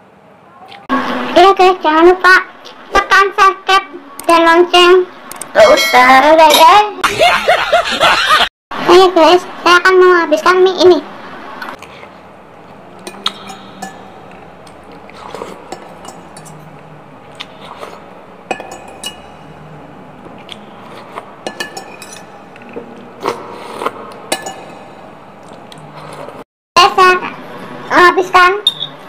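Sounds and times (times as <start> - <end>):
cutlery clinking on glass bowl: 13.0 - 14.4, 18.5 - 19.5, 21.4 - 22.6, 24.3 - 24.9.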